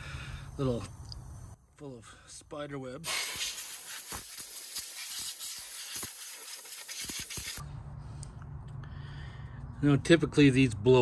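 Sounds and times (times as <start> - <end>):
compressed air hissing: 3.0 - 7.6.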